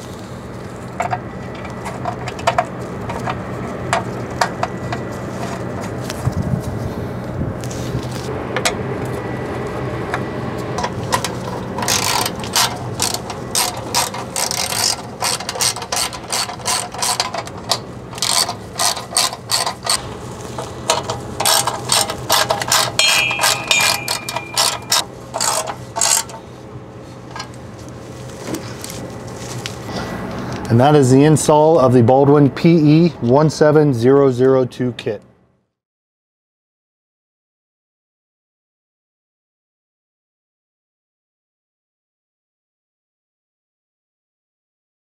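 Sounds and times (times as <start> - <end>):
hand ratchet clicking: 11.1 - 20.0, 20.9 - 26.4.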